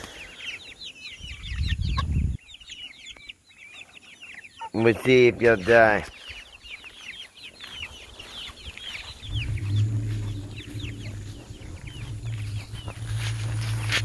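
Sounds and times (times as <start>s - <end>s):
hens calling: 0.0s - 14.0s
low steady hum: 9.2s - 14.0s.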